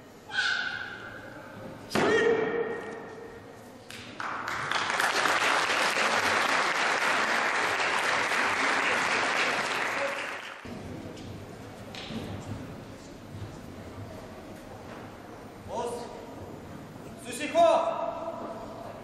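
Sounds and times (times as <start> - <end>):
audience applauding: 4.2 - 10.7.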